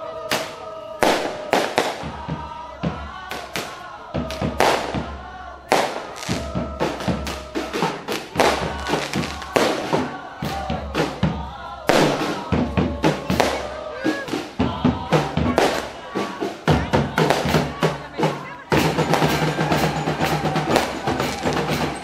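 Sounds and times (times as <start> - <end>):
procession music with singing: 0.0 - 22.0.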